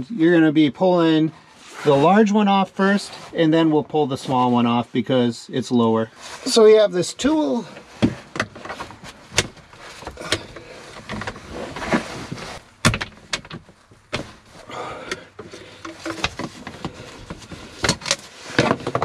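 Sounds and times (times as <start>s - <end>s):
plastic clicks knocks and scrapes: 15.4s - 19.0s.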